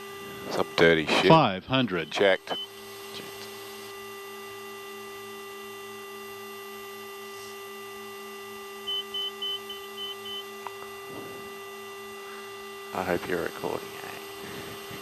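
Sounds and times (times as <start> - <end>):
turboprop engines humming: 0.0 - 15.0
short high beeps: 8.9 - 10.4.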